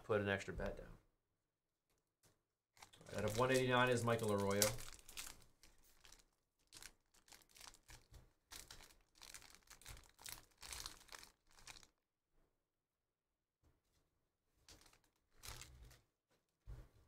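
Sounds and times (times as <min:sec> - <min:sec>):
plastic sleeves crinkling: 0:02.8 - 0:12.0, 0:14.6 - 0:16.1.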